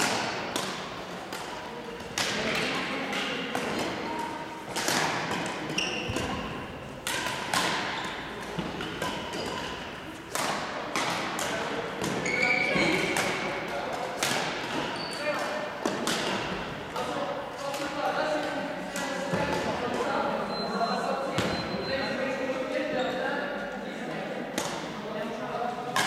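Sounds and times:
badminton racket hitting shuttlecock: 0.0 - 18.0.

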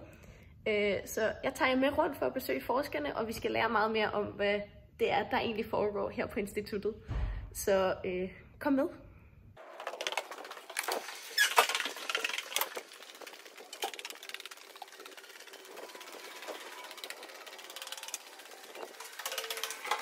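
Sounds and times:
footsteps: 9.6 - 17.1.

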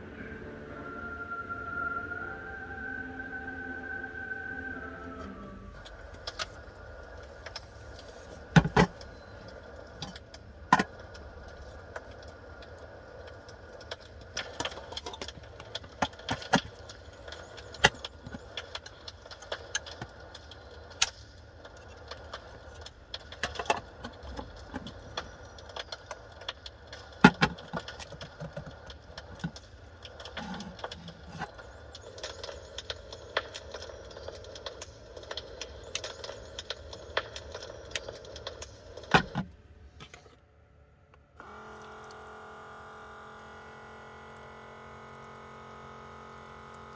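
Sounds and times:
steady low hum: 0.0 - 46.9
small clicks and knocks: 5.8 - 40.4.

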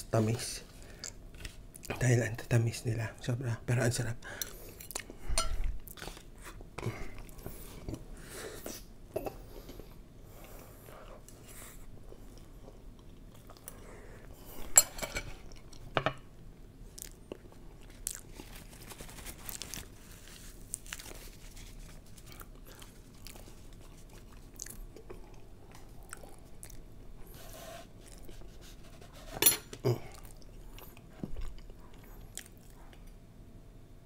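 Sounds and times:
person chewing: 16.9 - 18.7, 19.5 - 26.9, 28.0 - 28.5, 29.7 - 33.2.

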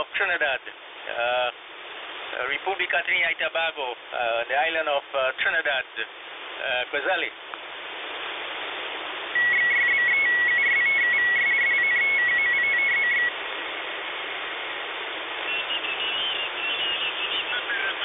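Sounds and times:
radio hiss: 0.0 - 1.6, 2.2 - 7.3, 9.2 - 13.4, 14.8 - 18.0
beeping tone keyed on and off: 9.4 - 13.3
garbled radio chatter: 15.4 - 18.0.

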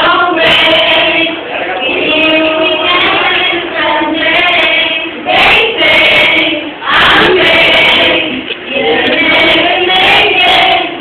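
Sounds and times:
group of students singing: 0.0 - 11.0.

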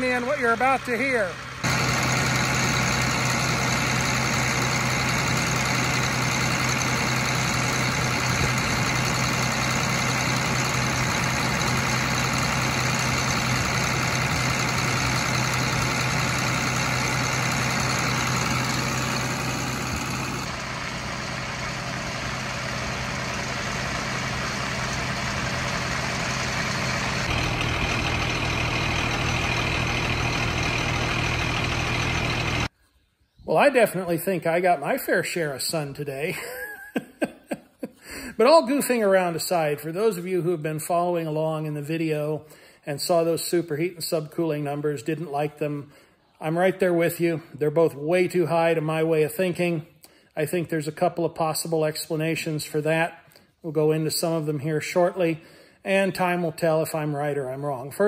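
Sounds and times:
tractor diesel engine running: 0.0 - 32.7, 38.1 - 45.6.

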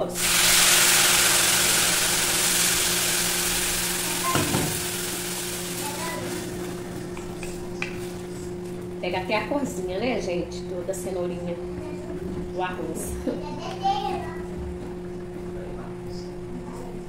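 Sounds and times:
water sizzling in hot pan: 0.0 - 7.0.

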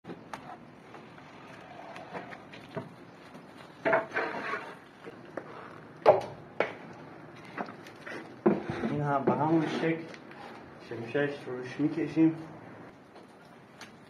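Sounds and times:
trowel scraping wet plaster: 3.8 - 5.0, 8.0 - 10.1.

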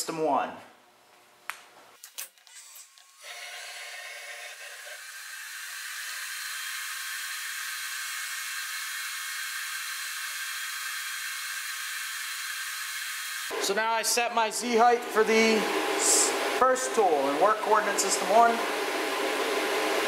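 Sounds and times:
milling machine whirring hiss: 2.8 - 18.6.

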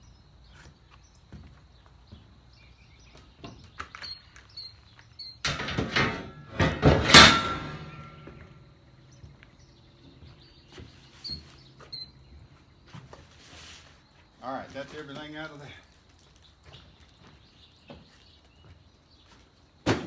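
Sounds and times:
faint birds chirping: 0.0 - 5.8, 8.0 - 19.9
metal part clattering and clanking: 5.4 - 8.6.

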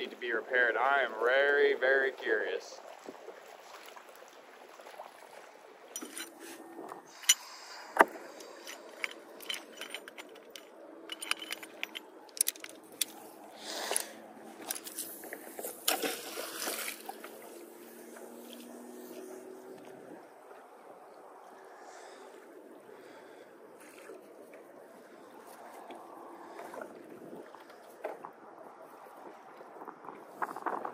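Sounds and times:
rope clicking and rattling: 8.4 - 13.2.

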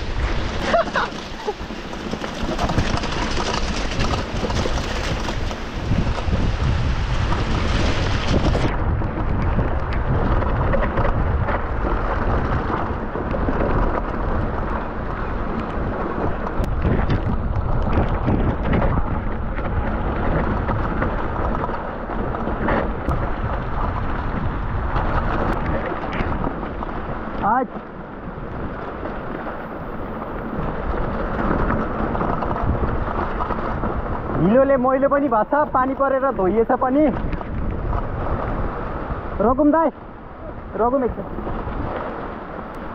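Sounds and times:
bike rattling: 0.0 - 42.9
wind buffeting microphone: 0.0 - 42.9
sharp clicks from bumps: 1.1 - 6.4.

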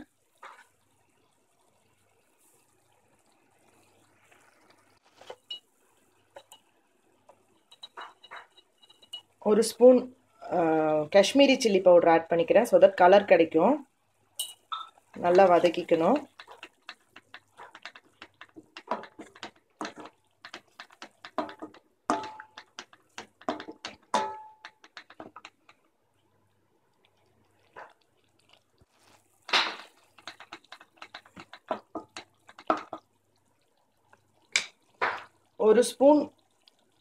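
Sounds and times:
spatula stirring thick sauce: 0.2 - 0.8, 15.0 - 26.4, 27.0 - 34.5
spatula knocking on pan: 15.2 - 25.7, 30.2 - 33.0.

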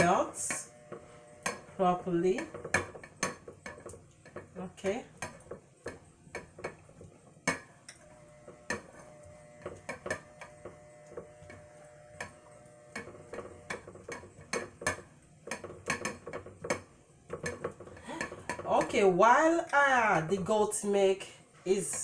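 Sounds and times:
spatula stirring in a saucepan: 0.0 - 20.8, 21.6 - 22.0
spatula clicking against a pan: 5.2 - 8.0, 12.2 - 18.9.

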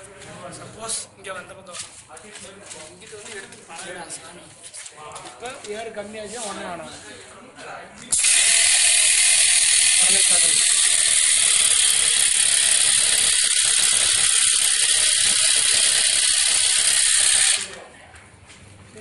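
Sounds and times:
air compressor hissing buzz: 8.1 - 17.8.

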